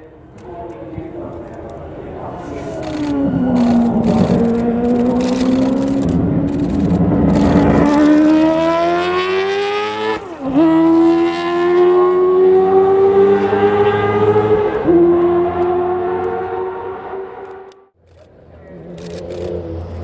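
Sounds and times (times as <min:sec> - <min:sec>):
gear change: 0:02.4 - 0:20.0
race car engine accelerating: 0:02.6 - 0:17.9.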